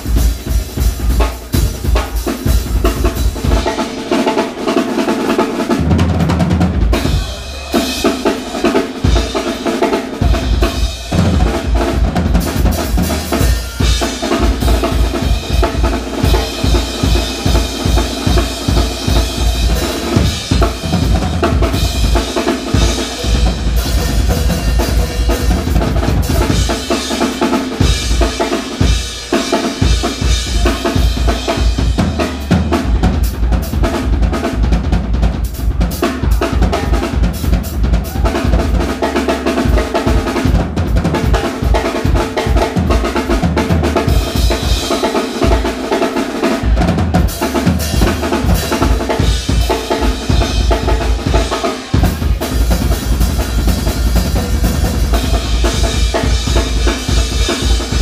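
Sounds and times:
drum kit beat: 0:00.0 - 0:58.0
live band playing: 0:00.0 - 0:58.0.

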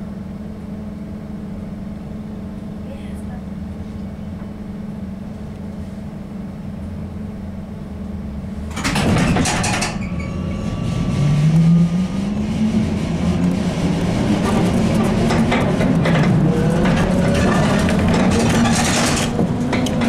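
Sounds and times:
trolleybus low hum: 0:00.0 - 0:20.0
loud rush of noise: 0:10.4 - 0:20.0.

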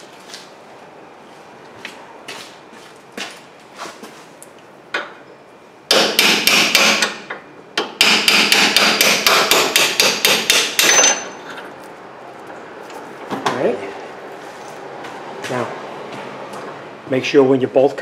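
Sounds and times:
hammer striking metal drift: 0:05.9 - 0:07.3, 0:08.0 - 0:11.4.

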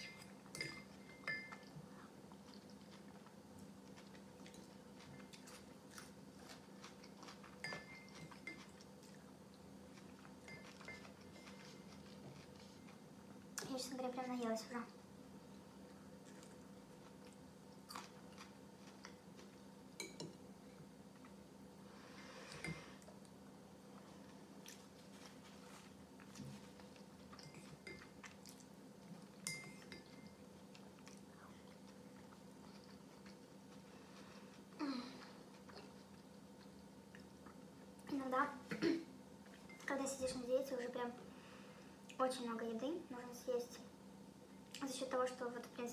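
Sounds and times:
spoon clinking ceramic bowl: 0:00.5 - 0:01.6, 0:29.4 - 0:30.4
person chewing: 0:01.5 - 0:13.4, 0:15.4 - 0:19.7, 0:24.2 - 0:38.0.

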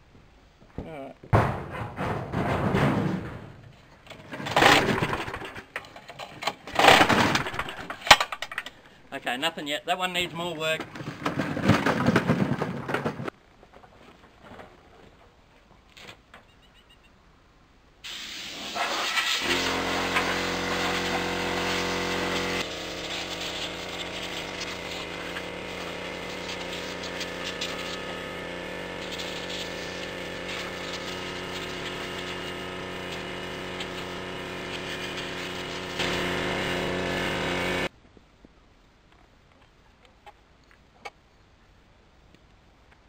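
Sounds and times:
air blow gun hissing: 0:18.0 - 0:37.9
air compressor humming: 0:19.3 - 0:37.9.

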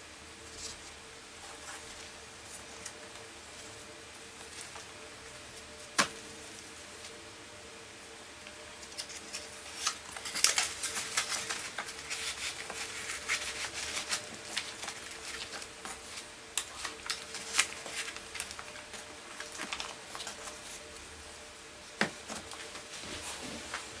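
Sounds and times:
faint hum: 0:00.0 - 0:24.0
paper rustling and sliding: 0:08.8 - 0:21.1, 0:22.0 - 0:24.0.

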